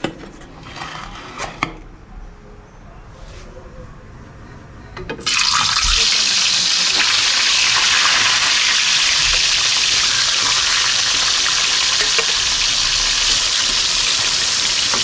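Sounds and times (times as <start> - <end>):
fish frying in hot oil: 5.3 - 15.0.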